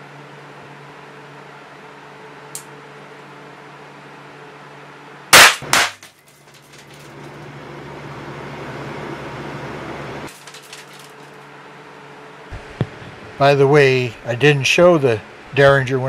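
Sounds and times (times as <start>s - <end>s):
sharp gunshot crack: 5.3s - 6.0s.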